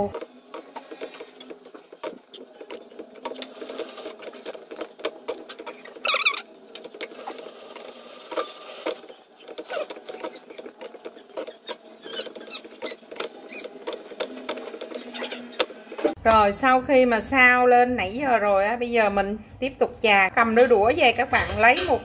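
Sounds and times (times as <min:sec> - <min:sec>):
utensils scraping a frying pan: 0:00.0 - 0:16.2.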